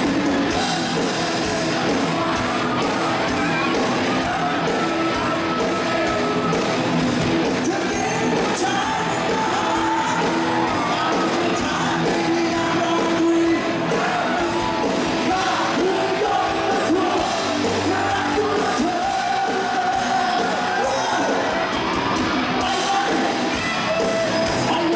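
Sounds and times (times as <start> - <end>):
drums: 0.0 - 24.9
electric guitar: 0.0 - 24.9
man singing: 7.5 - 21.6, 22.6 - 24.9.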